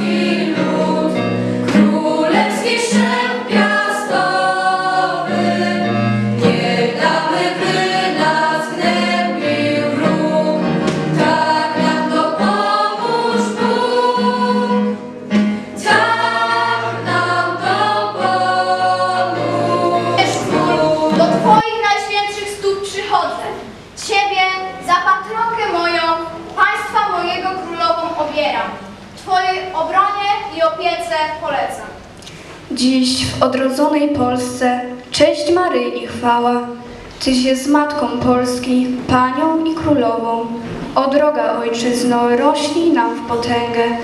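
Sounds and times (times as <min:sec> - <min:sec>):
choir singing in unison: 0:00.0 - 0:21.6.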